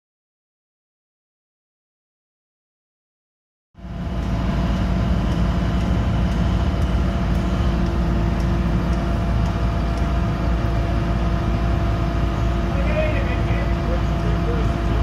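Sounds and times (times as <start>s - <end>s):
constant hum: 3.8s - 15.0s
construction diesel engines droning: 3.8s - 15.0s.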